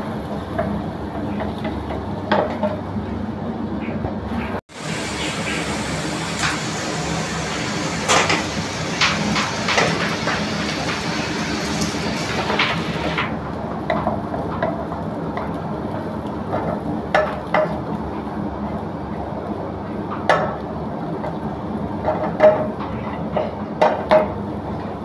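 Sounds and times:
gas range roar: 0.0s - 25.0s
food sizzling in oil: 4.7s - 13.4s.

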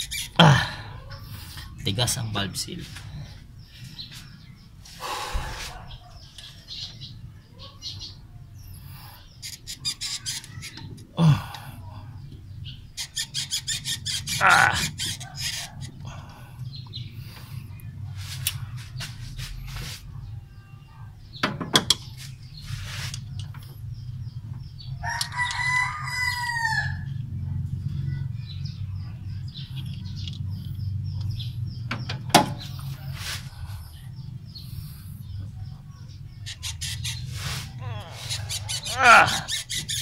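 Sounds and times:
rooster crowing: 25.0s - 27.2s
steady low hum: 26.9s - 40.0s.

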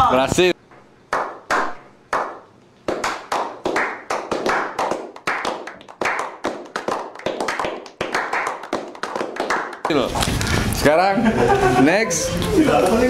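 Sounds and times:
people clapping: 1.1s - 10.5s.

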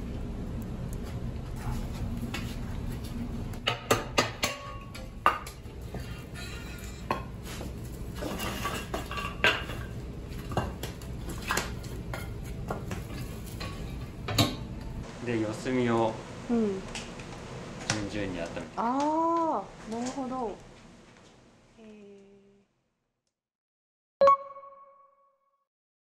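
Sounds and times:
iron oven fittings clanking: 3.6s - 7.3s.

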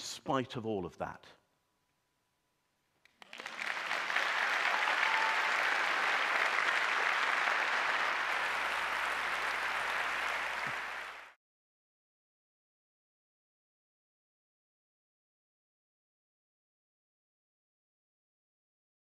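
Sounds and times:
audience applauding: 3.1s - 11.4s.

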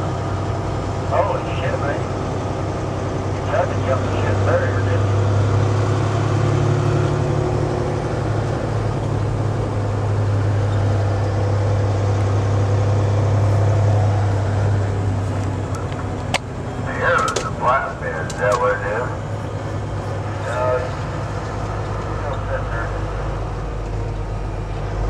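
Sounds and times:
road noise: 0.0s - 25.0s
truck diesel engine drone: 0.0s - 25.0s.

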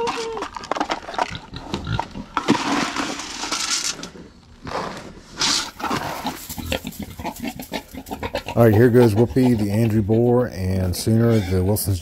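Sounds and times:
pigs grunting: 0.8s - 2.4s, 4.7s - 12.0s.

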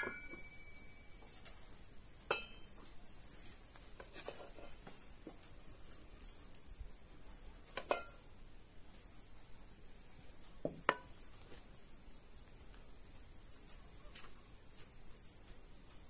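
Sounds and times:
metal spoon clinking on pan: 2.3s - 2.8s.

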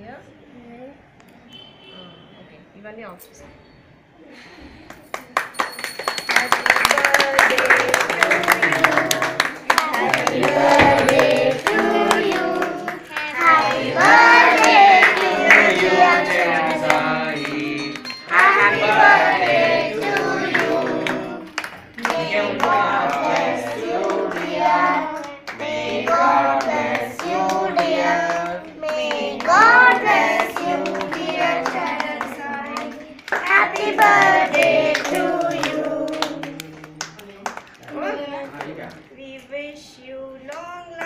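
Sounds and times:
hand claps: 4.9s - 38.0s
children and women singing: 6.8s - 37.0s.

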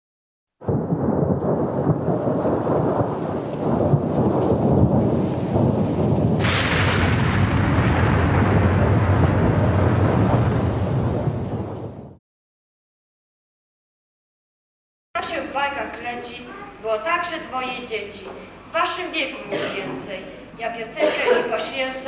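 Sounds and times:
low rumble of thunder: 0.6s - 12.2s
rain hiss: 0.7s - 11.7s.

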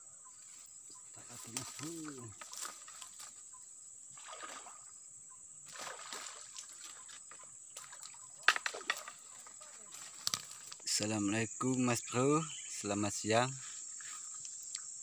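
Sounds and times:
fish splashing water: 4.1s - 4.9s, 5.7s - 7.2s.

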